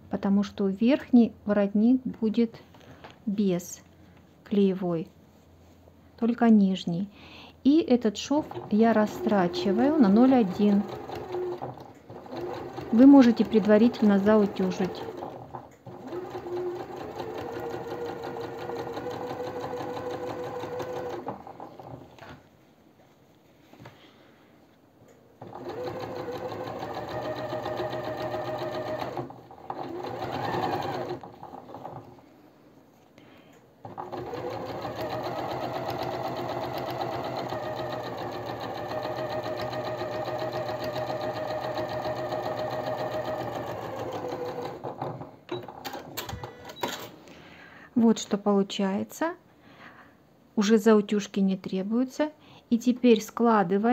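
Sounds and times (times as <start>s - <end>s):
sewing machine stitching: 8.4s - 22.3s, 25.4s - 32.2s, 33.8s - 47.1s.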